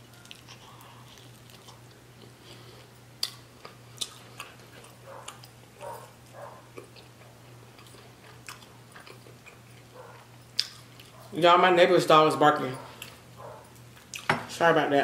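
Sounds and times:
chewing food: 0:00.0 - 0:11.4, 0:12.8 - 0:14.3
steady low hum: 0:00.0 - 0:15.0
wet mouth clicks and smacks: 0:10.6 - 0:10.8.

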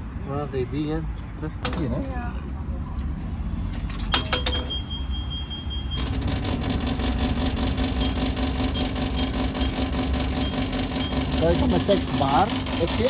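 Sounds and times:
steady high beep: 0:04.2 - 0:06.2, 0:07.9 - 0:11.9
electric air compressor running: 0:06.0 - 0:13.0.

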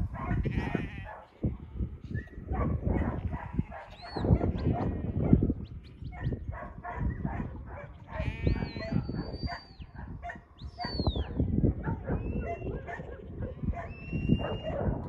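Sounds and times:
shepherd's whistle: 0:08.4 - 0:09.8, 0:10.6 - 0:11.3, 0:12.1 - 0:12.8, 0:13.8 - 0:15.0.

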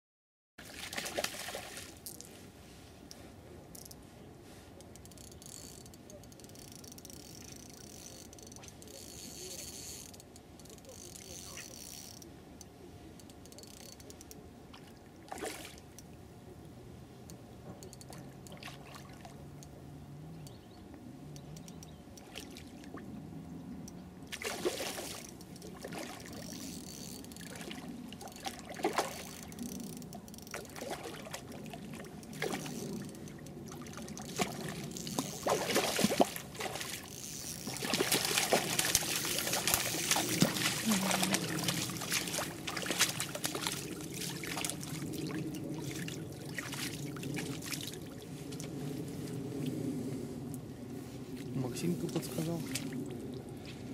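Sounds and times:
fish splashing at water surface: 0:00.6 - 0:02.0, 0:24.3 - 0:26.6, 0:33.7 - 0:48.1
water sloshing in shallows: 0:00.6 - 0:02.4, 0:14.6 - 0:16.2, 0:18.1 - 0:19.6, 0:22.2 - 0:53.8.

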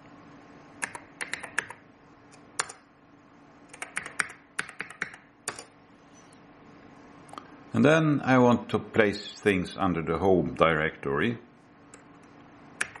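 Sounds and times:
keyboard key clicks: 0:00.8 - 0:01.8.

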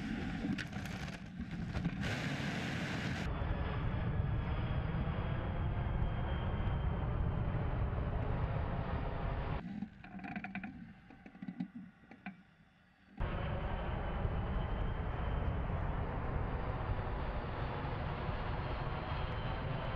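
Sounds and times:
scattered clicks and knocks: 0:09.6 - 0:12.5.

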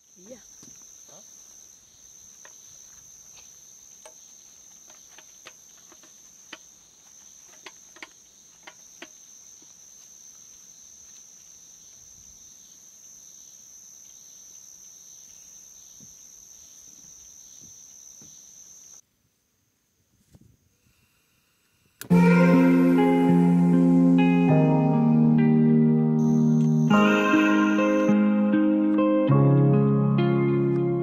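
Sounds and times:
crickets trilling: 0:00.0 - 0:19.0, 0:26.2 - 0:28.2
sharp clicks and taps: 0:07.5 - 0:09.2.

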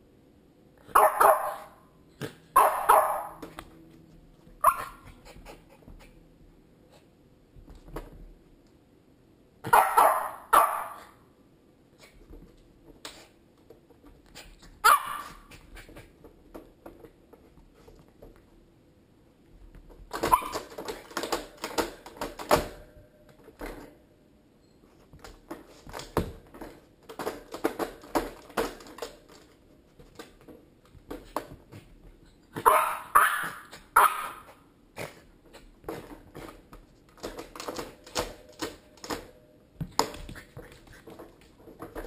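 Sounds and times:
small dog barking and yipping: 0:00.9 - 0:01.8, 0:02.5 - 0:03.4, 0:04.6 - 0:05.2, 0:09.7 - 0:11.2, 0:14.8 - 0:15.6, 0:20.2 - 0:20.7, 0:32.6 - 0:34.6
plastic cage knocking and clicking: 0:19.9 - 0:22.8, 0:25.2 - 0:31.6, 0:35.9 - 0:40.4.

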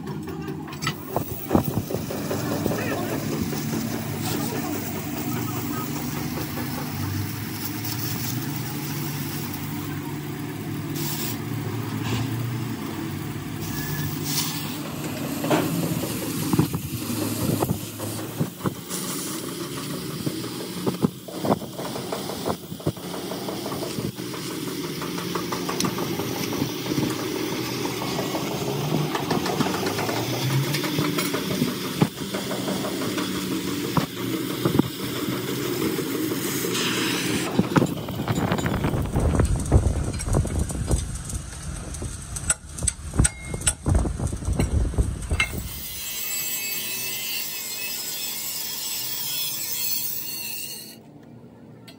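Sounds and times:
crackling sparks: 0:01.0 - 0:23.1, 0:36.4 - 0:48.6
cutting torch hissing roar: 0:01.0 - 0:43.2.

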